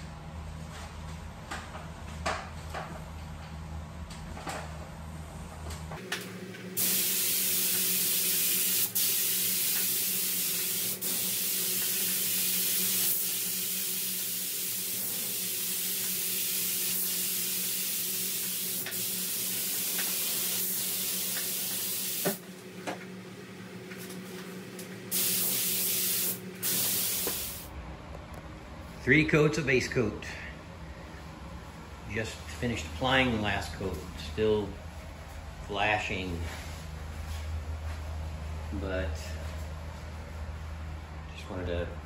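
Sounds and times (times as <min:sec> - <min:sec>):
spray gun hissing: 0:06.8 - 0:22.4, 0:25.1 - 0:27.7
steady low hum: 0:22.4 - 0:42.0.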